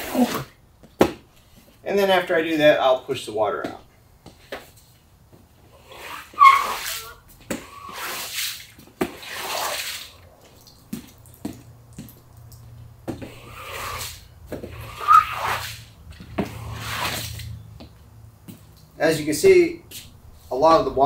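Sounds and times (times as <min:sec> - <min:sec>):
squeegee swishing water: 0:05.8 - 0:17.6.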